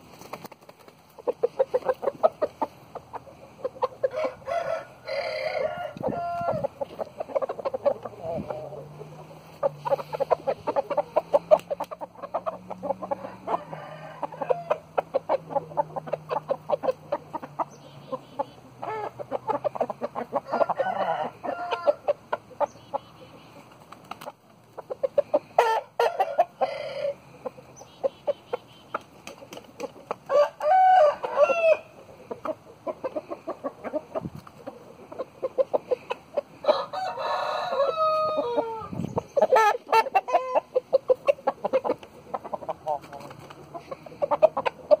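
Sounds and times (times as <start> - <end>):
roosters clucking: 0.0 - 45.0
rooster crowing: 4.0 - 6.7, 13.1 - 14.8, 20.4 - 22.1, 25.6 - 27.2, 30.3 - 31.9, 36.6 - 38.9.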